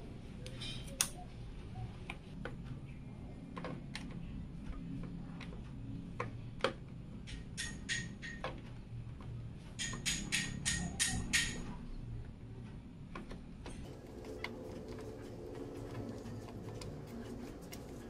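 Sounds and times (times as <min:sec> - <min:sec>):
clicks and taps of plastic parts: 0:03.4 - 0:11.6, 0:13.1 - 0:13.8
faint low hum: 0:11.7 - 0:18.0.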